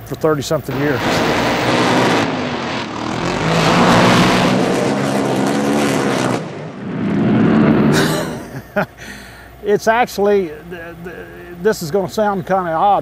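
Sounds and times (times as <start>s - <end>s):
boat engines at full throttle: 0.7s - 8.3s.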